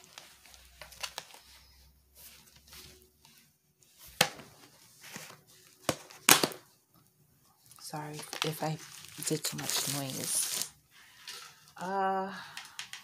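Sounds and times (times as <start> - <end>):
soft scraping and rustling: 1.3 - 5.8, 8.8 - 11.8.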